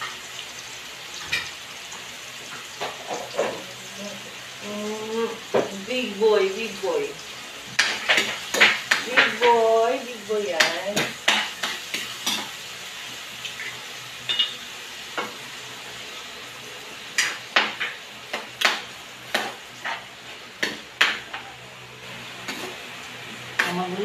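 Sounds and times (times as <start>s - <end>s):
utensil clanking in pan: 2.4s - 3.7s, 7.7s - 12.6s, 13.5s - 15.4s, 17.1s - 21.5s.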